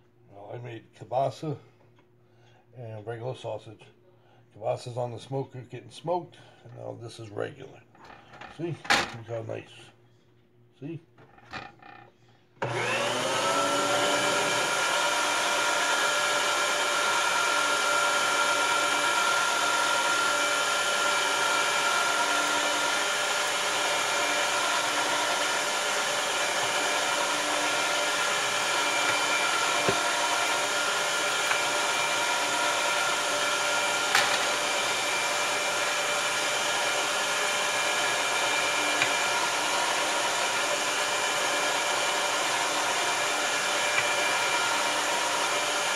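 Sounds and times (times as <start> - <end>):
electric meat grinder motor: 12.6 - 45.9.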